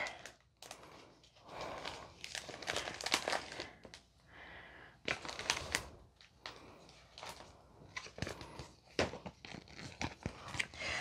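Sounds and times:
plastic packaging crinkling: 0:00.0 - 0:04.1, 0:05.0 - 0:11.0.

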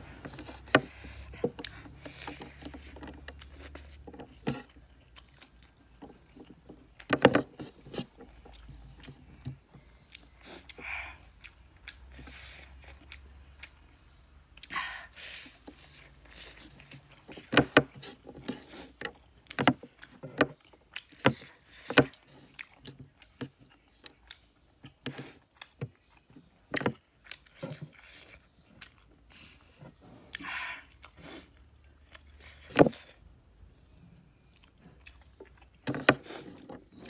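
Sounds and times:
wet chewing and lip smacks: 0:10.0 - 0:14.8, 0:18.7 - 0:29.7, 0:33.8 - 0:37.0.

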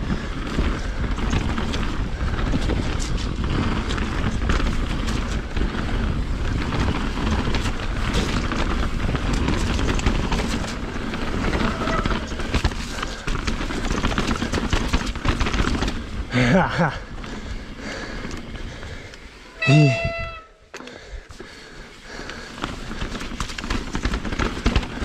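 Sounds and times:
bike rattling and knocking: 0:00.0 - 0:19.4, 0:20.0 - 0:25.0
bike tyres on trail: 0:00.0 - 0:25.0
wind on microphone: 0:19.6 - 0:20.5.

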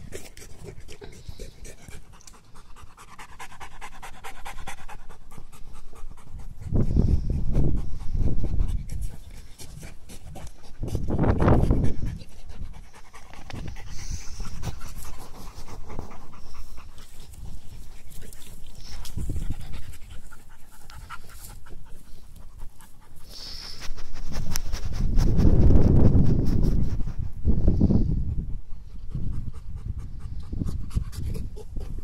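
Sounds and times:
dog panting: 0:00.0 - 0:25.4.

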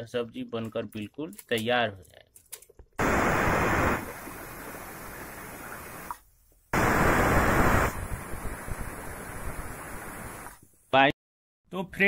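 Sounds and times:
steady hiss of escaping steam: 0:03.0 - 0:06.1, 0:06.8 - 0:10.6.

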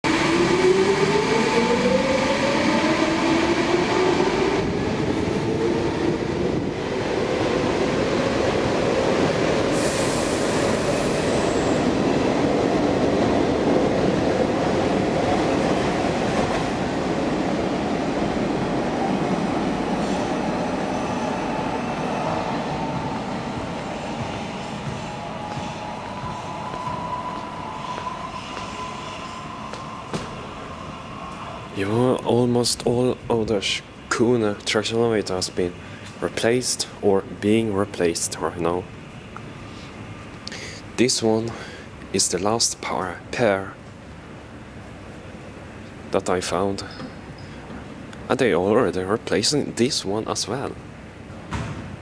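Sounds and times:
train rumble: 0:00.0 - 0:34.0.

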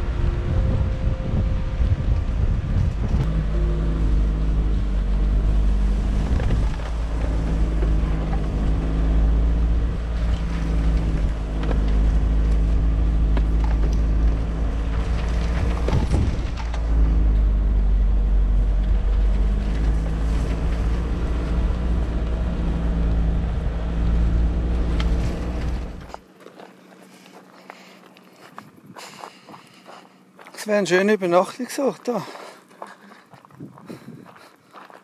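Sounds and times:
wind noise on microphone: 0:00.0 - 0:07.7, 0:15.2 - 0:17.9, 0:33.4 - 0:34.5
hum tones: 0:00.0 - 0:26.2
van engine rumble: 0:00.0 - 0:30.8.

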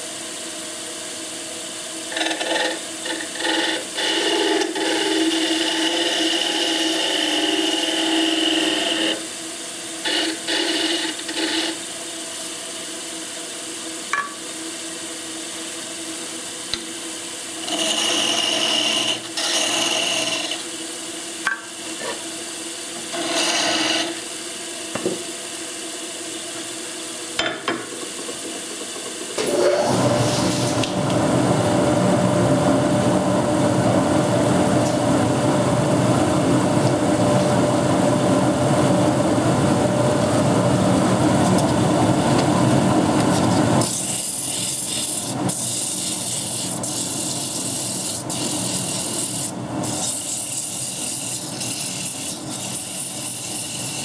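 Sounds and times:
loud mechanical noise: 0:01.9 - 0:12.7, 0:16.2 - 0:54.0
chisel scraping on lathe: 0:02.1 - 0:09.2, 0:10.0 - 0:11.8, 0:17.6 - 0:20.6, 0:23.1 - 0:24.2, 0:43.3 - 0:54.0
lathe humming: 0:02.1 - 0:09.4, 0:10.0 - 0:11.8, 0:17.5 - 0:20.8, 0:22.9 - 0:25.4.

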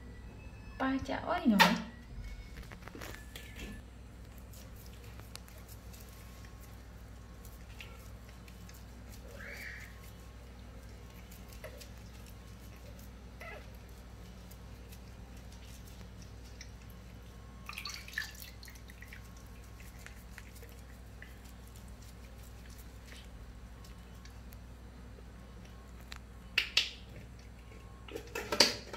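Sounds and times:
infant monkey squeak: 0:09.2 - 0:10.1
bath water drips and splashes: 0:15.4 - 0:21.6.

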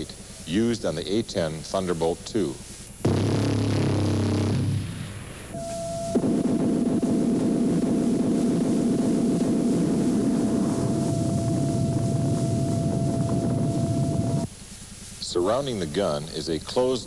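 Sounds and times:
constant whine: 0:00.0 - 0:17.0
cannon fire roar: 0:03.0 - 0:14.5
shells bursting: 0:03.0 - 0:14.5.

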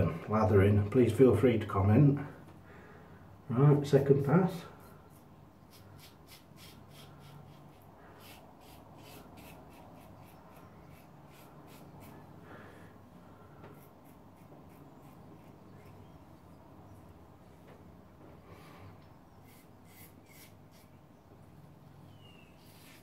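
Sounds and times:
razor scraping stubble: 0:04.6 - 0:12.3, 0:13.5 - 0:16.4, 0:19.3 - 0:21.2, 0:22.3 - 0:23.0.

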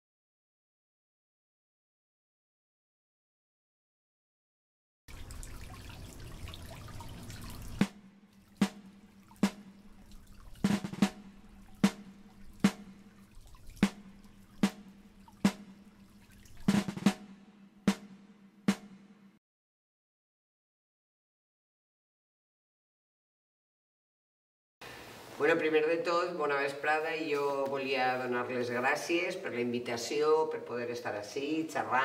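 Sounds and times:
slow drum hits: 0:07.6 - 0:16.0, 0:16.6 - 0:19.4.

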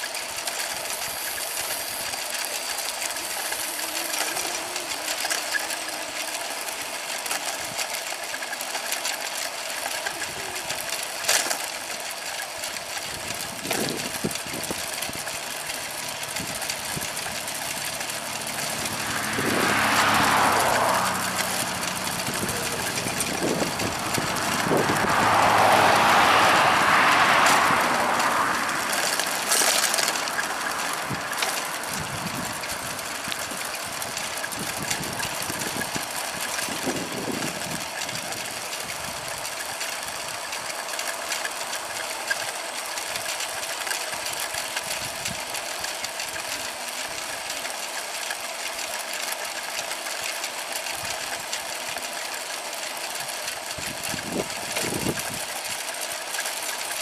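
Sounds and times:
small motor running with rattle: 0:00.0 - 0:57.0
vehicle passing: 0:00.9 - 0:08.6, 0:13.5 - 0:44.4.

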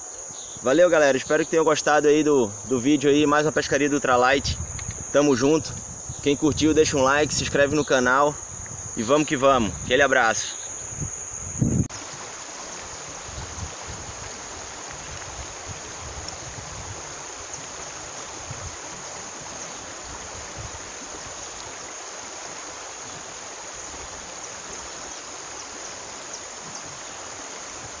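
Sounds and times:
high-pitched insect buzz: 0:02.4 - 0:28.0
river rippling over stones: 0:11.9 - 0:28.0.

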